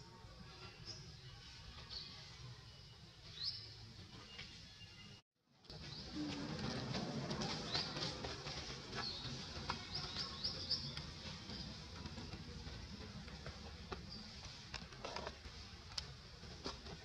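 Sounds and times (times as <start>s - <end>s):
small birds chirping: 8.9s - 13.0s.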